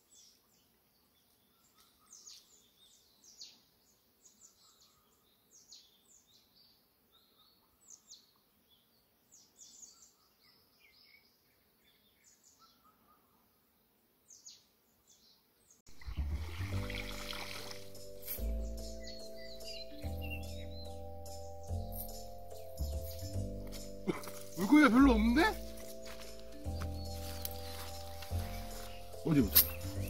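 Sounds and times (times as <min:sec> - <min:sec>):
birds chirping: 0:14.3 - 0:30.0
music: 0:15.9 - 0:30.0.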